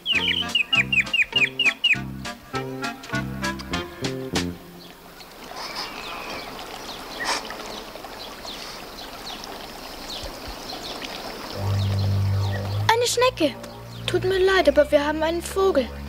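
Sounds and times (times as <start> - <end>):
low held musical note: 11.6 - 14.5.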